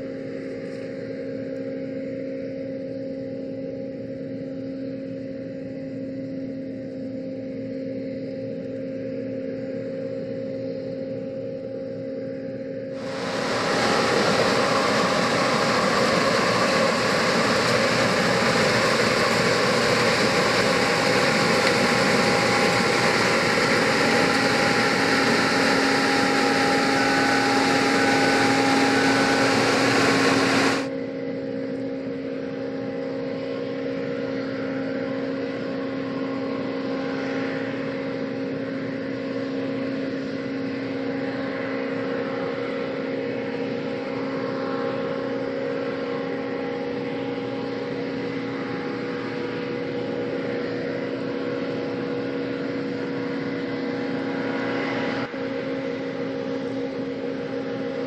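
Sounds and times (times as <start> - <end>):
combine harvester running: 13.0 - 30.9.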